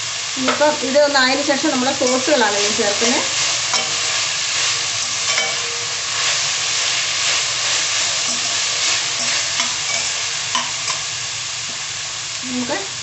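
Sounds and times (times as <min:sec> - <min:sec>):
vegetables sizzling in oil: 0:00.0 - 0:13.0
utensil scraping pan: 0:02.0 - 0:11.0.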